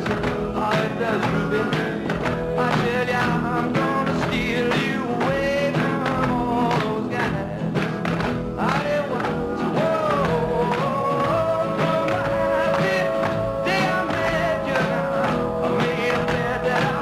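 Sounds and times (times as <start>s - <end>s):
song with band and vocals: 0.0s - 17.0s.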